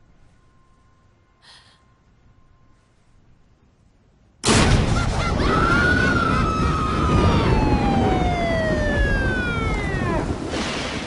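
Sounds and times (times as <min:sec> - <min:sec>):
heavy rain: 0:04.4 - 0:11.0
police sirens wailing: 0:05.0 - 0:10.5.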